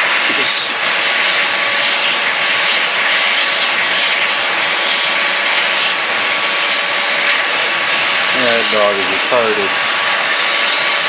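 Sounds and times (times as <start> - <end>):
vacuum brush rubbing dog coat: 0.0 - 11.0
vacuum cleaner running: 0.0 - 11.0.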